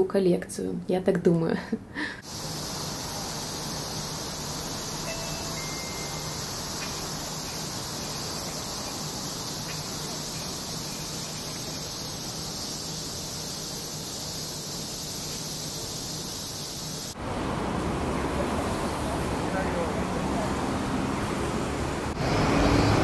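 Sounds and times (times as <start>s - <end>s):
insect chorus: 2.2s - 17.2s
traffic noise: 2.2s - 23.0s.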